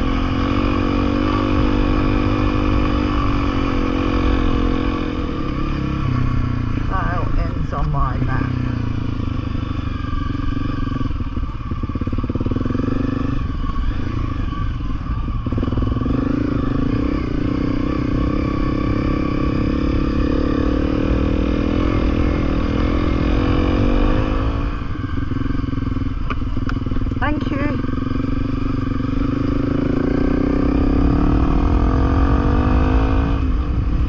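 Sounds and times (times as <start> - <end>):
motorcycle engine running: 0.0 - 34.0.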